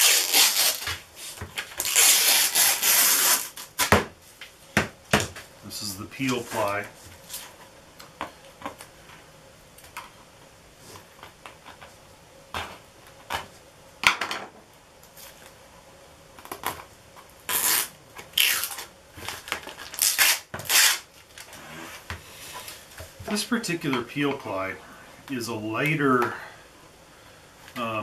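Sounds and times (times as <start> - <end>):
fabric ripping: 0.0 - 4.0, 17.5 - 18.9, 19.8 - 22.0.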